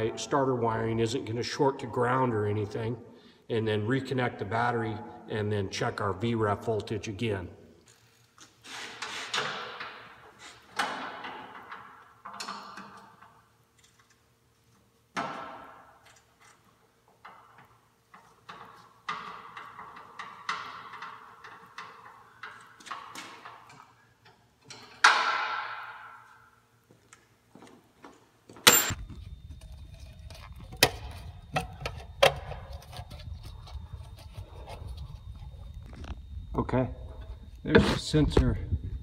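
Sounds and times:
ringing metal clanks: 0:28.7 - 0:29.0.

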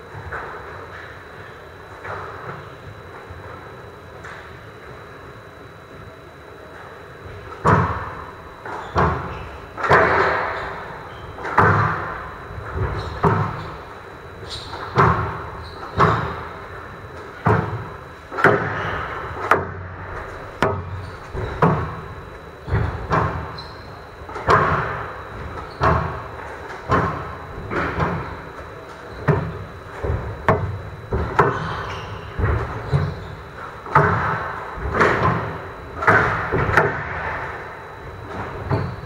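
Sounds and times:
squash ball hitting rackets and wall: 0:07.6 - 0:08.2, 0:08.8 - 0:13.7, 0:14.6 - 0:16.6, 0:17.4 - 0:22.1, 0:22.7 - 0:23.6, 0:24.3 - 0:26.2, 0:26.9 - 0:28.3, 0:29.2 - 0:33.2, 0:33.8 - 0:37.6.

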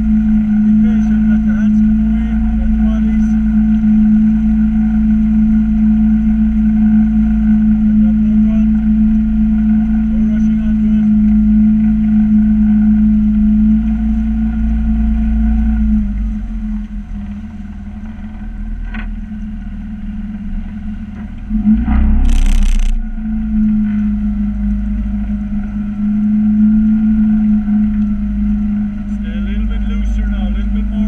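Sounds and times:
outboard motor running: 0:00.0 - 0:31.0
loud rush of noise: 0:21.7 - 0:23.3.

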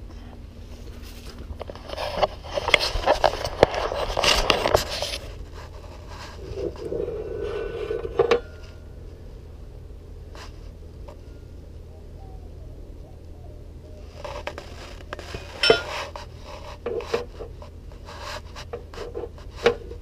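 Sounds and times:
metal scraping and clattering: 0:01.0 - 0:08.9, 0:14.2 - 0:17.7.

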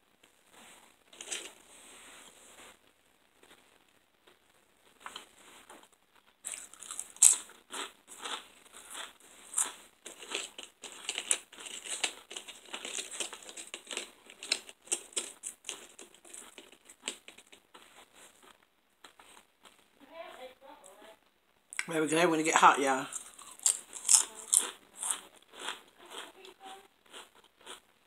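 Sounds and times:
snack packaging crinkling: 0:01.1 - 0:01.6, 0:06.2 - 0:19.8, 0:22.7 - 0:27.8.

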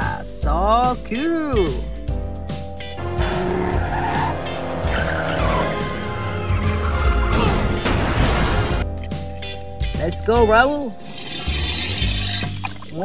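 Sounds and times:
background music: 0:00.0 - 0:13.0
tyres squealing and skidding: 0:02.9 - 0:08.1
racing car engines: 0:02.9 - 0:08.3
car crash: 0:03.2 - 0:08.8.

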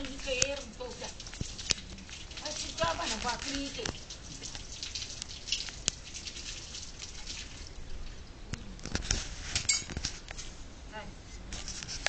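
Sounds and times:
small irregular clicks: 0:00.0 - 0:07.4
water dripping and splashing: 0:00.0 - 0:10.4.

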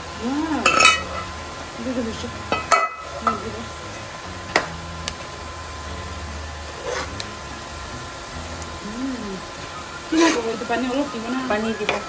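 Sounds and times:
steady low hum: 0:00.0 - 0:11.9
soft sizzle: 0:00.0 - 0:12.0.

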